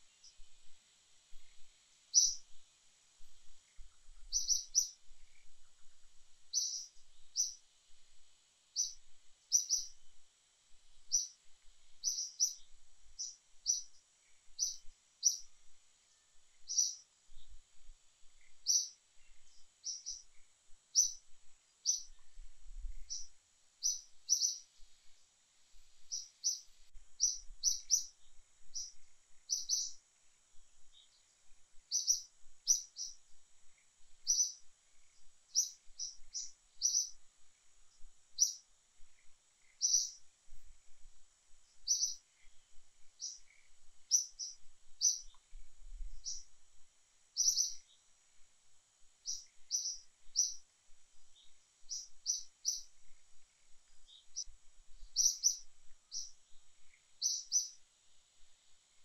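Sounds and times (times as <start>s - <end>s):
faint steady high hiss: 0.0s - 59.0s
bird high chirp: 2.1s - 2.4s, 4.2s - 5.5s, 6.5s - 7.6s, 8.8s - 10.0s, 11.1s - 11.4s, 12.0s - 15.5s, 16.1s - 17.6s, 18.4s - 20.4s, 21.0s - 21.2s, 21.8s - 22.4s, 23.0s - 24.7s, 26.0s - 30.0s, 31.9s - 33.2s, 34.2s - 34.7s, 35.5s - 37.2s, 38.4s - 38.6s, 39.6s - 40.2s, 41.8s - 42.2s, 43.2s - 45.4s, 46.2s - 46.5s, 47.4s - 48.0s, 49.2s - 50.6s, 51.4s - 52.9s, 54.1s - 56.4s, 57.2s - 57.8s.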